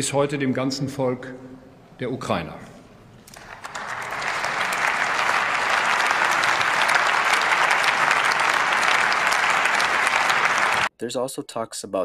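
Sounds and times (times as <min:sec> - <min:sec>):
applause: 0:03.3 - 0:10.9.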